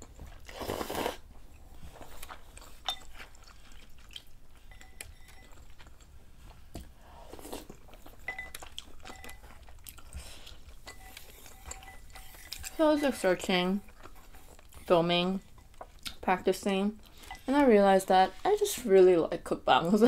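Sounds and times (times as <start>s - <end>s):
soft chewing: 0.0s - 18.9s
noodles slurped: 0.4s - 1.3s
chopsticks clinking on ceramic bowl: 4.7s - 6.1s, 8.2s - 9.7s, 10.7s - 14.0s.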